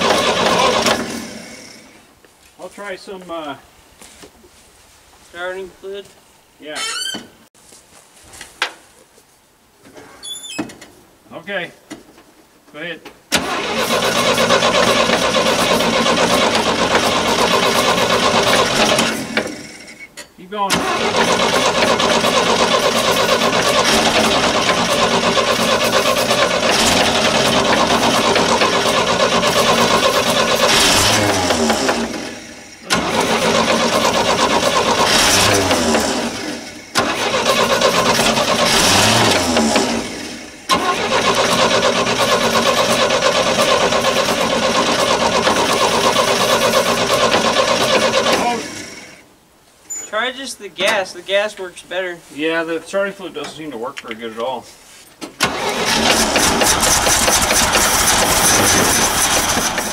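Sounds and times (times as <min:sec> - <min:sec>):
engine cranked by starter: 0:00.0 - 0:02.0, 0:13.3 - 0:20.1, 0:20.7 - 0:49.2, 0:55.3 - 0:59.9.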